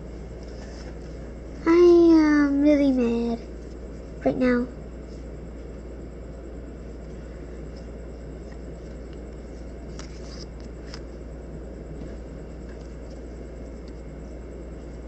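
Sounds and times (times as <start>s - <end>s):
steady low hum: 0.0s - 15.0s
soft card scrapes: 9.9s - 11.0s
trading cards sliding together: 9.9s - 11.0s.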